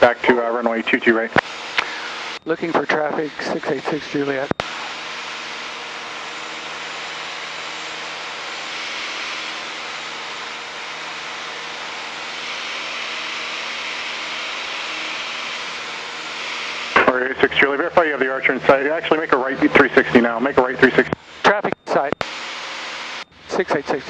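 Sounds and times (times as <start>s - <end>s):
aircraft engine and propeller drone: 0.0s - 24.0s.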